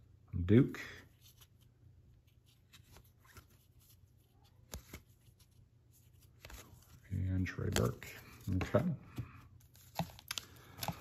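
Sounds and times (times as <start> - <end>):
trading cards clicking and sliding: 6.1 - 11.0.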